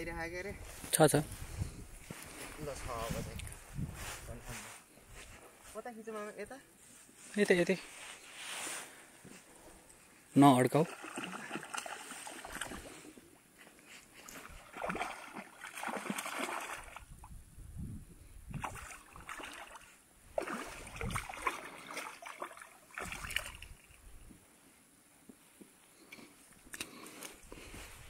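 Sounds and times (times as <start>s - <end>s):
fish splashing at water surface: 10.8s - 13.1s, 14.3s - 17.2s, 18.6s - 24.0s.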